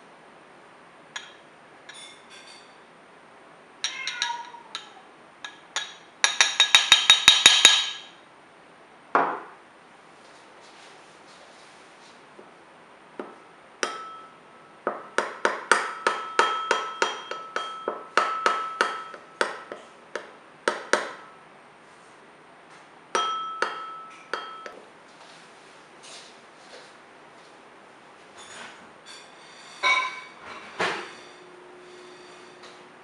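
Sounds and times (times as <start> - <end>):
teaspoon clinking against ceramic bowl: 3.8 - 8.2, 13.8 - 14.4, 15.7 - 19.7, 23.2 - 24.8.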